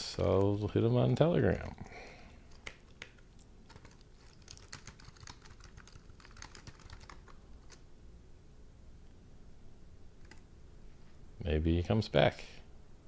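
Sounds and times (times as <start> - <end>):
typing on a keyboard: 2.5 - 7.8, 10.2 - 10.4.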